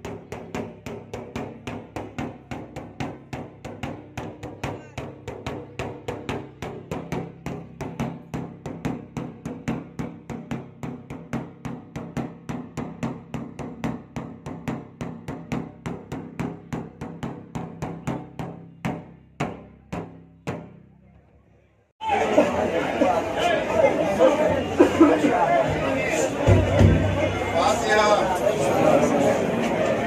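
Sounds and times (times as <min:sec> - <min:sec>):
large drum beating: 0:00.0 - 0:20.9, 0:25.6 - 0:27.8.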